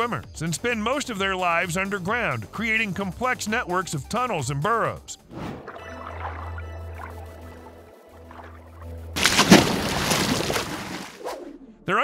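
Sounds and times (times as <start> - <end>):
water sloshing and churning: 5.4 - 11.3.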